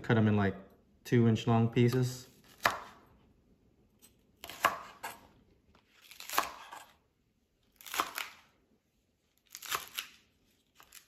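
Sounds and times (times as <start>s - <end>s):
knife slicing on cutting board: 5.9s - 7.0s.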